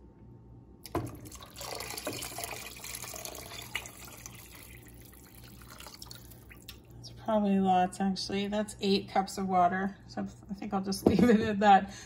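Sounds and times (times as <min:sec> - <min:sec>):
water pouring into pot: 0:00.9 - 0:06.8.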